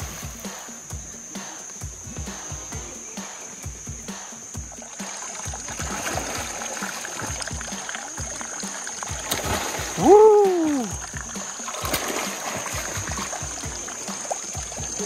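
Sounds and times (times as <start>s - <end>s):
background music with a beat: 0.0s - 15.0s
water splashing: 3.4s - 15.0s.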